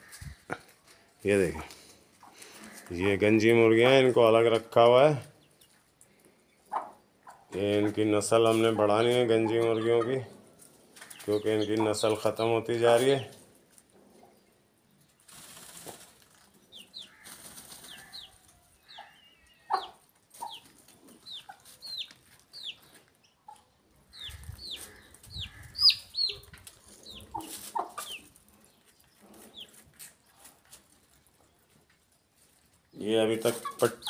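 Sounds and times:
chicks peeping: 1.7 - 13.4, 14.0 - 34.0
chickens pecking on plastic bag: 15.0 - 18.6.

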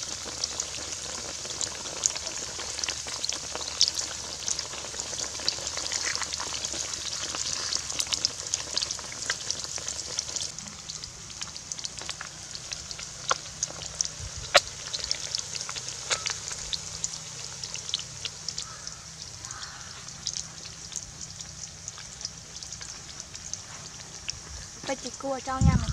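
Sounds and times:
fish sizzling in hot oil: 0.0 - 25.9
oil spitting pops: 10.2 - 17.2.

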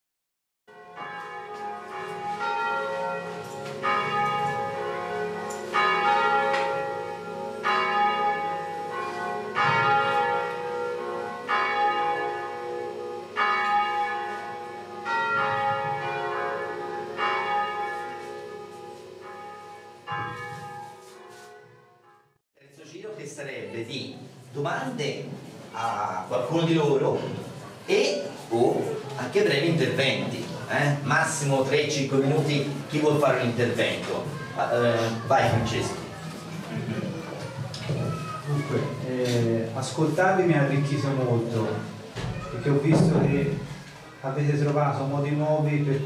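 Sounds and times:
bells ringing: 0.7 - 22.2.

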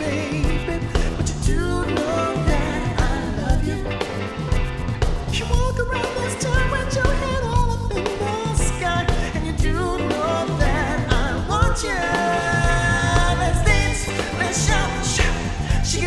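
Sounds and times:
people singing: 0.0 - 4.6, 8.0 - 16.0
live pop-funk band playing: 0.0 - 16.0.

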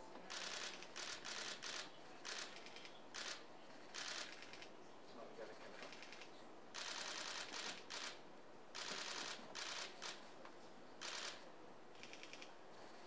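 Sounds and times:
camera shutters clicking: 5.8 - 8.2, 8.8 - 10.2, 11.0 - 11.4, 12.0 - 12.5.

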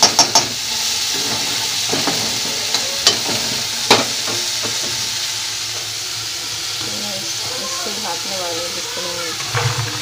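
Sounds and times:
spatula knocking against pan: 0.0 - 0.6
vegetables sizzling in oil: 0.0 - 10.0.

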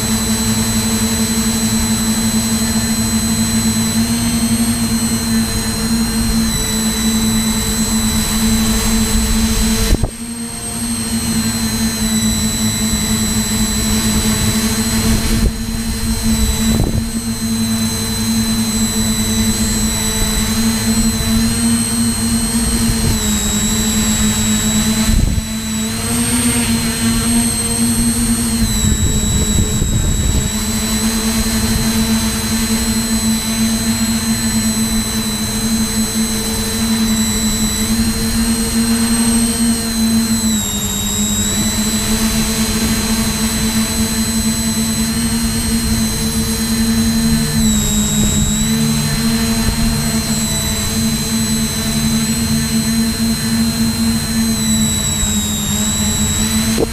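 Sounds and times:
drone motors and propellers whining: 0.0 - 56.9.

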